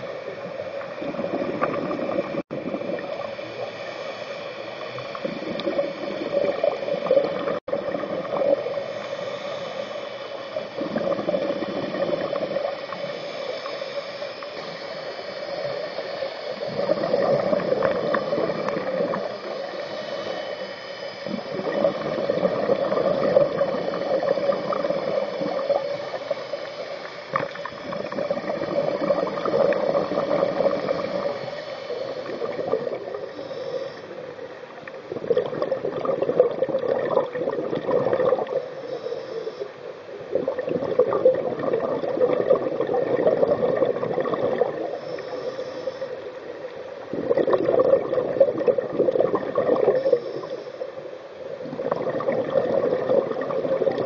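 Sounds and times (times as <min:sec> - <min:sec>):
underwater bubbles gurgling: 0:00.0 - 0:54.0.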